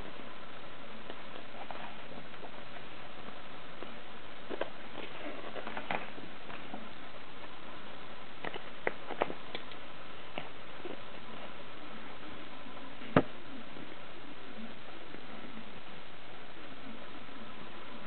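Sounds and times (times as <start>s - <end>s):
steady hiss: 0.0s - 18.0s
book pages rustling: 1.0s - 7.6s, 8.4s - 11.6s.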